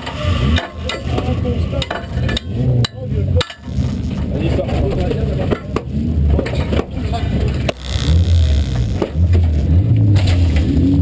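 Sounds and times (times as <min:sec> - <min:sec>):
race car engine idling unevenly: 0:00.5 - 0:10.6.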